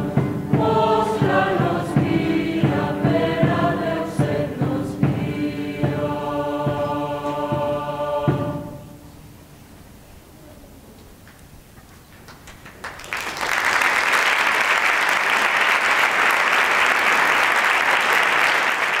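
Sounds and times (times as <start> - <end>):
audience applause: 12.1 - 19.0.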